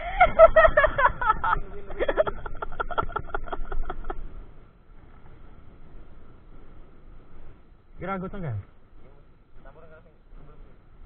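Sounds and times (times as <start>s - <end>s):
chuckling laughter: 0.0s - 4.3s.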